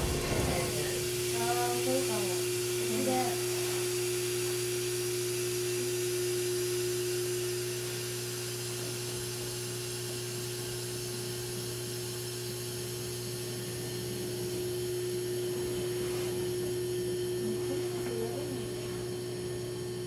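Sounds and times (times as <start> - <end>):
train equipment humming: 0.0 - 5.0, 13.2 - 20.0
held electrical tone: 0.0 - 20.0.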